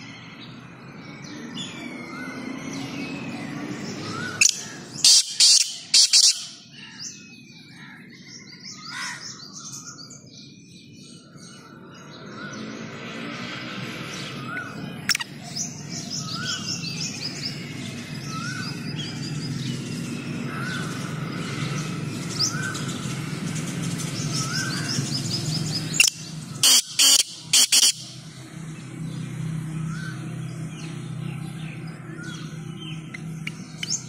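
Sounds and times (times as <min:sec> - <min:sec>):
small birds chirping: 0:00.0 - 0:34.0
francolin harsh call: 0:04.4 - 0:06.7, 0:26.0 - 0:28.2.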